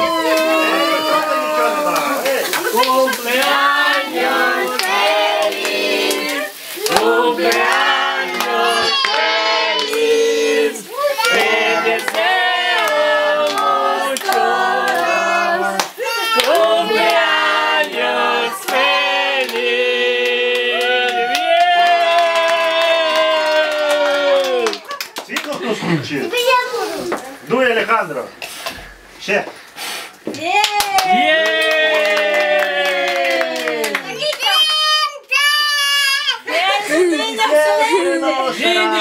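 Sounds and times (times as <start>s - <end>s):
group singing a celebration song: 0.0s - 24.7s, 36.5s - 39.0s
people clapping along: 0.0s - 25.7s, 30.6s - 34.7s.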